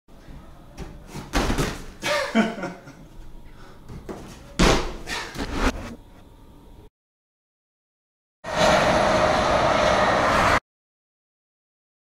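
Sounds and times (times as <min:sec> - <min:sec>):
body thudding onto crash mat: 0:01.1 - 0:01.9.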